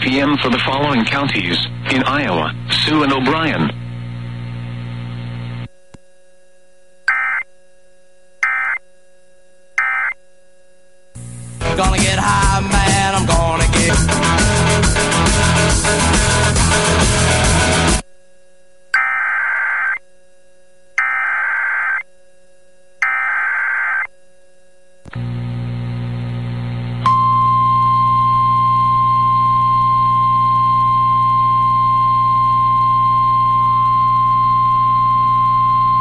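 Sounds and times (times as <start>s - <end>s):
radio hum: 0.0s - 5.7s, 7.1s - 7.4s, 8.4s - 8.8s, 9.8s - 10.2s, 19.0s - 20.0s, 21.0s - 22.0s, 23.0s - 24.1s, 25.1s - 27.0s
warbling data bursts: 7.1s - 7.4s, 8.4s - 8.8s, 9.8s - 10.2s, 19.0s - 20.0s, 21.0s - 22.0s, 23.0s - 24.1s
steady alarm tone: 7.1s - 7.5s, 8.4s - 8.8s, 9.8s - 10.2s, 19.0s - 20.0s, 21.0s - 22.1s, 23.0s - 24.1s.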